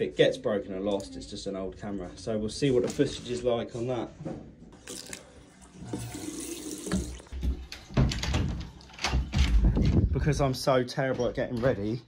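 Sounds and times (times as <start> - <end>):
tap running into sink: 5.8 - 7.4.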